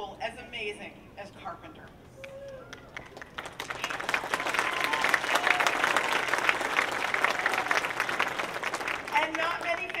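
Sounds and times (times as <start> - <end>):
audience applauding: 2.6 - 10.0.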